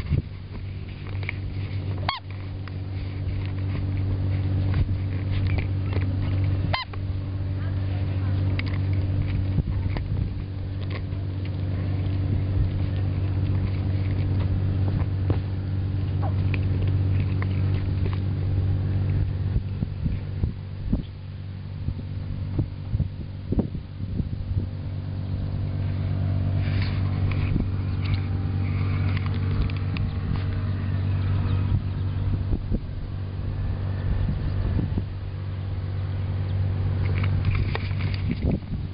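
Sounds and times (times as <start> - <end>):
boat engine droning: 0.0 - 38.9.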